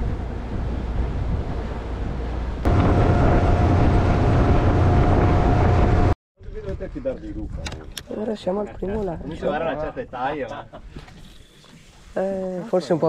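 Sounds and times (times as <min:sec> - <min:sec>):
motorboat engine running: 0:00.0 - 0:06.2
wind buffeting microphone: 0:00.0 - 0:09.3.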